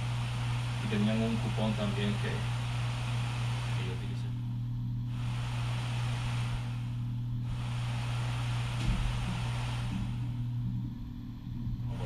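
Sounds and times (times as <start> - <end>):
desk fan motor hum: 0.0 - 12.0
hiss of moving air: 5.1 - 10.4.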